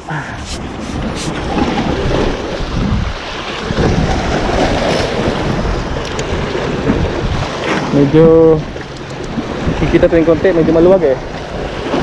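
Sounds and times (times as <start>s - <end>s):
wind buffeting microphone: 0.3s - 12.0s
sea waves breaking over rocks: 0.4s - 12.0s.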